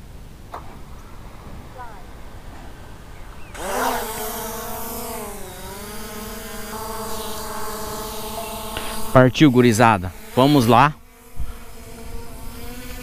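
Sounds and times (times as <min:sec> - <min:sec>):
drone propellers whining: 0:00.8 - 0:10.9.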